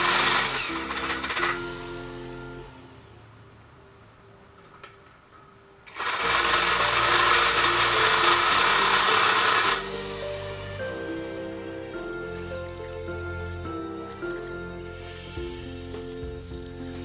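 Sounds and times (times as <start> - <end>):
electric drill boring metal: 0.0 - 2.3, 5.9 - 10.7.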